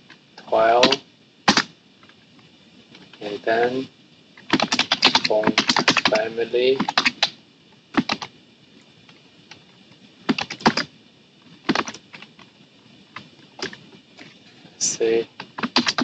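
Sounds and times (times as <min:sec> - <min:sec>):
typing on computer keyboard: 0:04.4 - 0:06.2, 0:06.8 - 0:07.3, 0:08.0 - 0:08.3, 0:10.3 - 0:10.9, 0:11.7 - 0:12.3, 0:15.4 - 0:16.0.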